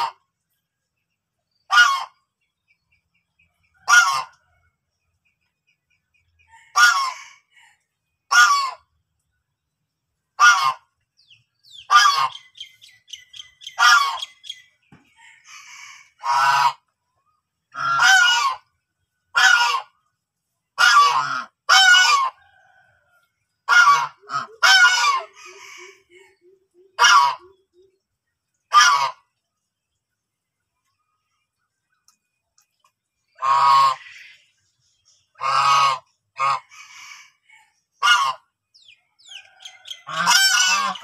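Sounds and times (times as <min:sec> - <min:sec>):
geese honking: 0:01.7 - 0:02.2, 0:03.7 - 0:04.6, 0:06.5 - 0:07.7, 0:08.3 - 0:08.9, 0:10.4 - 0:11.0, 0:11.7 - 0:14.6, 0:15.2 - 0:16.9, 0:17.7 - 0:18.7, 0:19.3 - 0:20.0, 0:20.8 - 0:22.6, 0:23.6 - 0:26.3, 0:26.9 - 0:27.8, 0:28.7 - 0:29.4, 0:33.4 - 0:34.5, 0:35.4 - 0:37.3, 0:38.0 - 0:38.5, 0:39.2 - 0:41.0.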